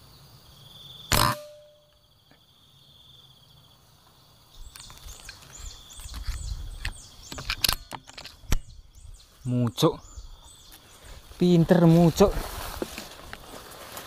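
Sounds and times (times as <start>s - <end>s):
insects trilling: 0.0s - 14.0s
air rifle shot: 1.1s - 1.7s.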